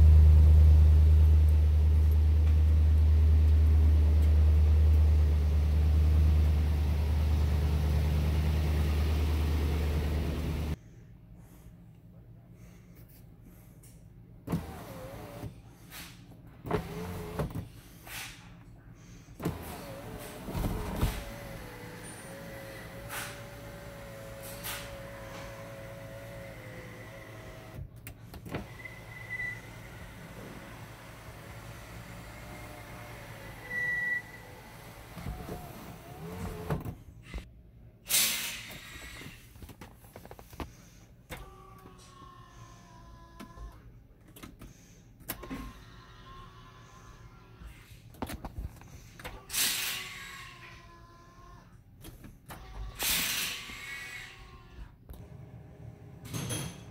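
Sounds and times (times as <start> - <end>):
sunroof motor whining: 14.5 - 15.5, 16.7 - 17.6, 19.4 - 37.0
short high squeal: 28.8 - 29.8, 33.6 - 34.6
brief loud hiss: 38.1 - 39.0, 53.0 - 53.9.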